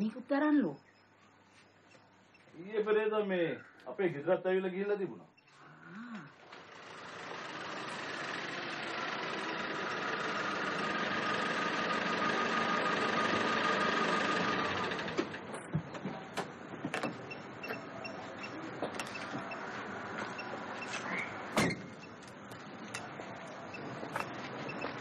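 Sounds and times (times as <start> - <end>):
pickup truck engine running: 6.4 - 14.8.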